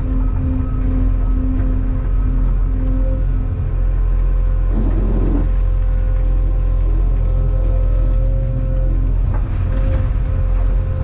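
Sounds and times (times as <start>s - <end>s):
excavator engine droning: 0.0s - 11.0s
hydraulic whine: 0.0s - 11.0s.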